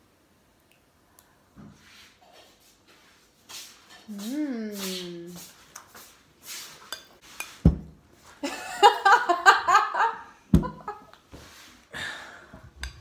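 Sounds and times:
young woman laughing: 8.4 - 11.1.

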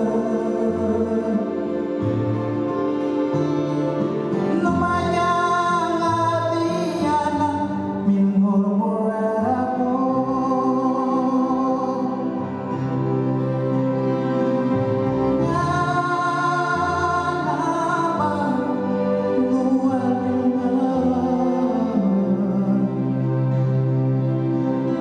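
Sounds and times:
man singing a slow song: 0.0 - 1.9, 4.5 - 12.5, 15.4 - 23.6
acoustic guitar: 0.0 - 25.0.

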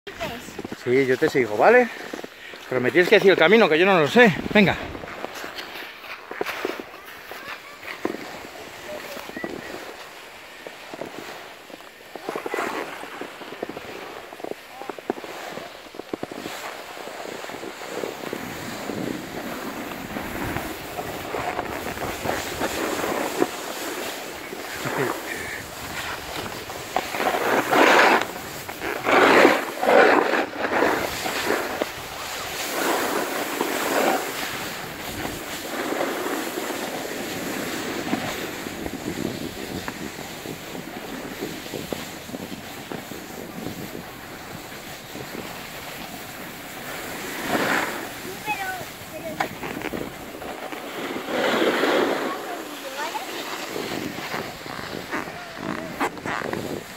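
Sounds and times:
skis scraping over snow: 0.1 - 56.9
wind on microphone: 4.3 - 5.3, 8.0 - 56.9.

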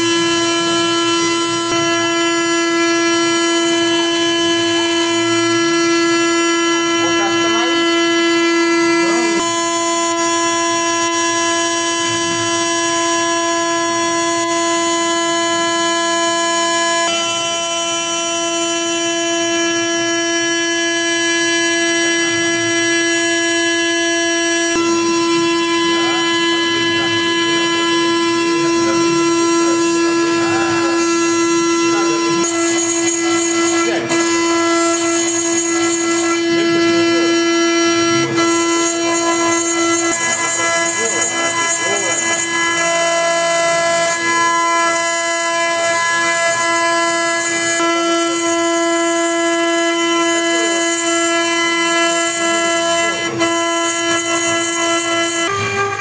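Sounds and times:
milling spindle whining: 0.0 - 56.0.

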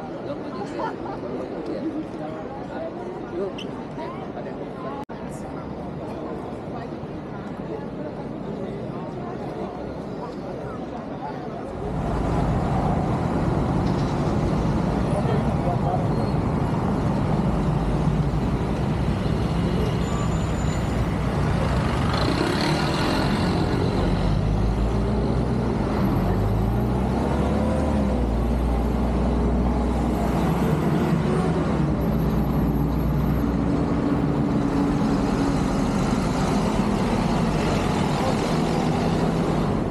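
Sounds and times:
diesel bus engines: 9.9 - 39.9
cars driving past: 11.8 - 39.9.

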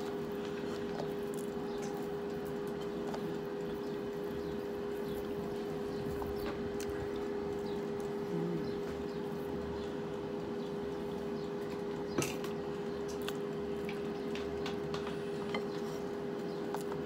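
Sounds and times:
chewing: 0.0 - 17.0
steady hum: 0.0 - 17.0.

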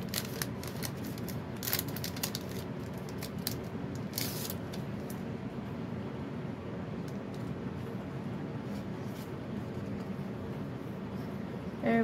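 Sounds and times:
plastic sleeve rustling: 0.0 - 5.2
low background noise: 0.0 - 12.0.

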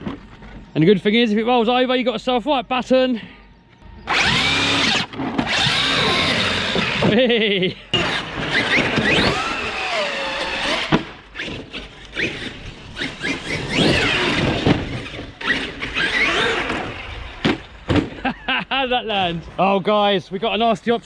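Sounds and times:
electric motor whining: 3.9 - 7.1, 8.0 - 16.9.

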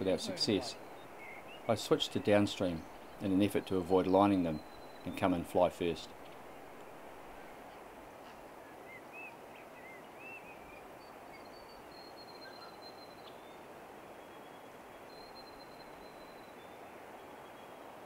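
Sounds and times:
birds chirping: 0.0 - 7.8
low rush of outdoor noise: 0.0 - 18.0
high whistled bird notes: 0.7 - 7.4.

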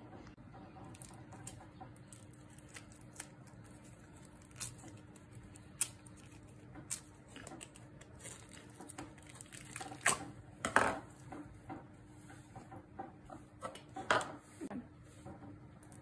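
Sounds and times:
slime clicking and crackling: 0.9 - 10.3
slime squishing: 0.9 - 10.4.

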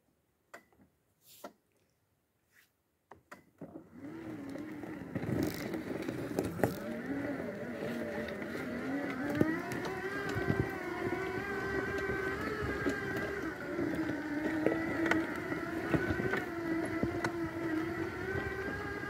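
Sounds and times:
electric wheelchair motors whining: 3.6 - 19.0
wheels knocking over stones: 4.4 - 19.0.

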